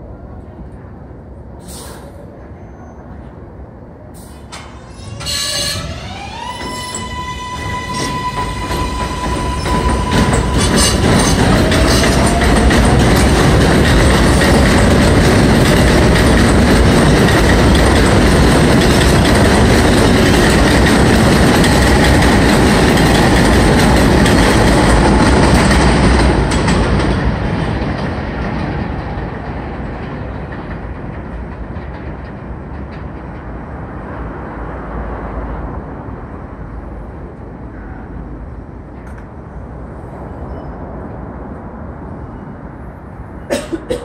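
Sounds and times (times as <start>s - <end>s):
subway train departing: 0.0s - 44.0s
wheels running on rails: 5.8s - 34.5s.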